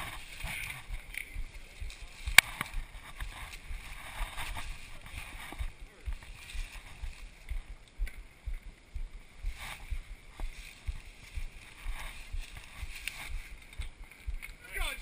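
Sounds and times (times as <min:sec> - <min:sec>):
camera housing bumps and rumble: 0:00.0 - 0:14.6
soft hiss: 0:00.0 - 0:15.0
faint clicks: 0:12.4 - 0:14.6.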